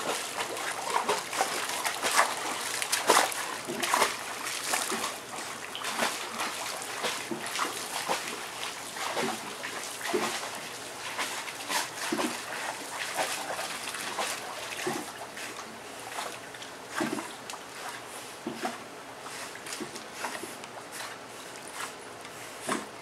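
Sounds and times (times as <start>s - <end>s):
dogs splashing in water: 0.0s - 22.0s.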